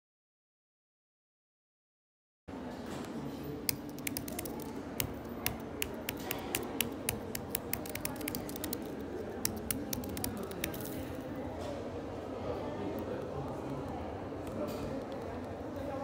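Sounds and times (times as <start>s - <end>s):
steady background noise: 2.5s - 16.0s
keyboard typing clicks: 3.7s - 11.1s.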